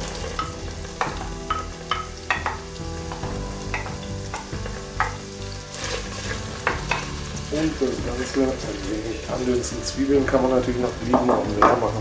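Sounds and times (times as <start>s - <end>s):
onions sizzling in hot oil: 0.0s - 12.0s
wooden spatula knocking and scraping: 0.4s - 8.8s, 10.2s - 12.0s.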